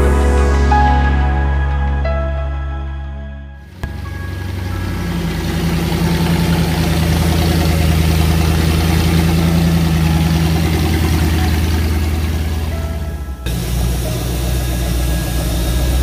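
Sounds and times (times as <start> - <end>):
car engine idling: 3.6 - 16.0.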